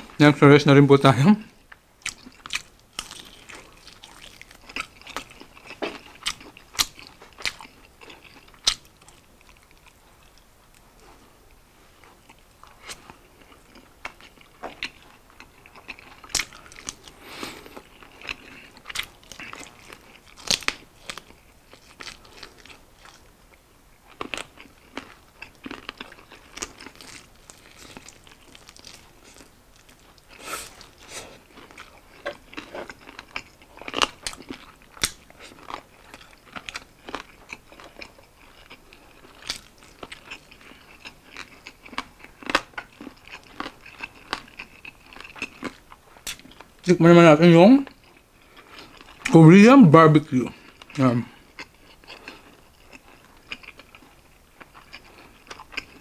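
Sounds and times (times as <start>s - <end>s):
wet chewing and lip sounds: 1.7s - 46.9s, 47.8s - 49.4s, 50.5s - 56.0s
crunching chicken skin: 2.0s - 9.9s, 15.6s - 23.3s, 24.1s - 46.6s.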